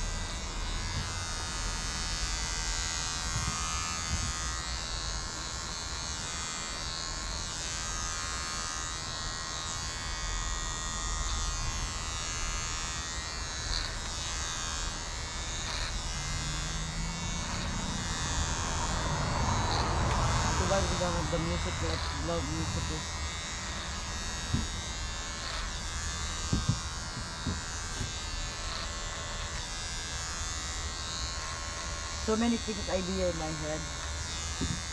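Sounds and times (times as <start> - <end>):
electric hair clippers buzzing: 0.0 - 34.9.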